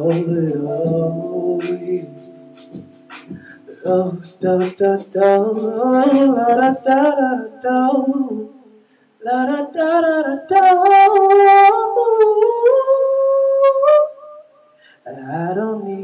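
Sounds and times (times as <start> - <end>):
man singing unaccompanied: 0.0 - 14.1, 15.0 - 16.0.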